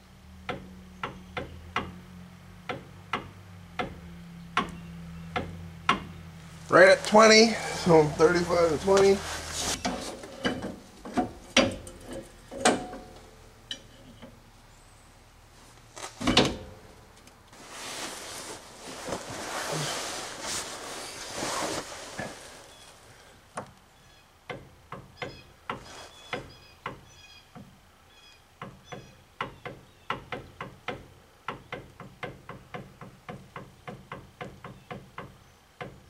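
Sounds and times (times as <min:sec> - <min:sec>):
metal scraping and rubbing: 0:06.5 - 0:13.1.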